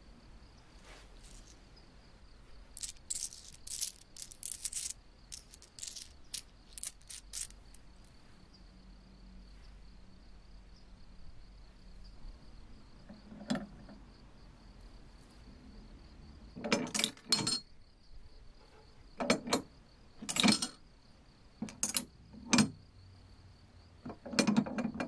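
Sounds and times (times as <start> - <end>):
coins clinking in palm: 2.8 - 7.8.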